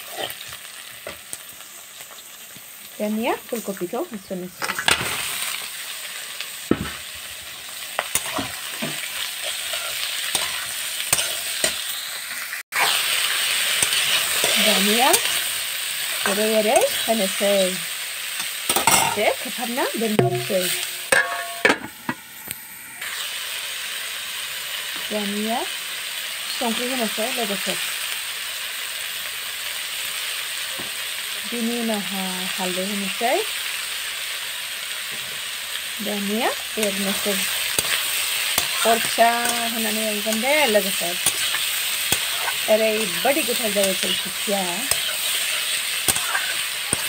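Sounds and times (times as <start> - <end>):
vegetables sizzling in oil: 0.0 - 47.0
spatula scraping pan: 8.0 - 11.9, 12.7 - 15.5, 36.4 - 47.0.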